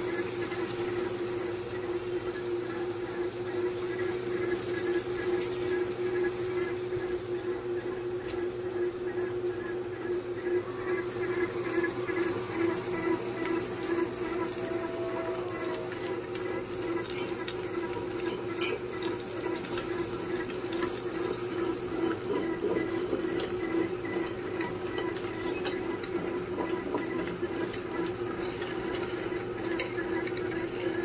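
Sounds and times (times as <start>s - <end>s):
stone rollers churning batter: 0.0s - 31.0s
wet grinder motor hum: 0.0s - 31.0s
water pouring into drum: 10.6s - 31.0s.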